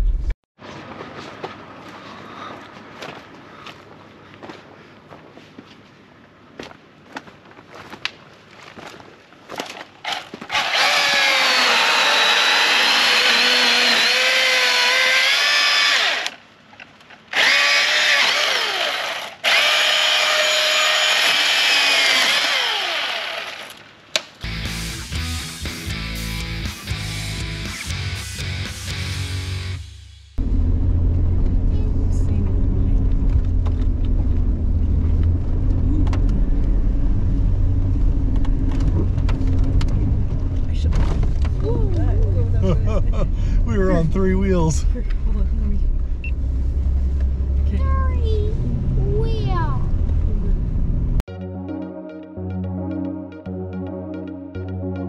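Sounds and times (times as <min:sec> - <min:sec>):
chainsaw cutting log: 0:10.1 - 0:16.4, 0:17.3 - 0:23.8
car engine low drone: 0:24.4 - 0:51.3.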